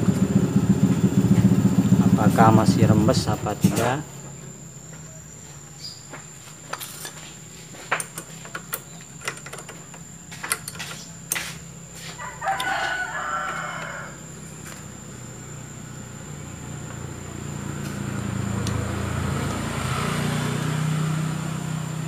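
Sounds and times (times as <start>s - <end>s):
steady low hum: 0.0s - 22.0s
rooster crowing: 12.0s - 15.0s.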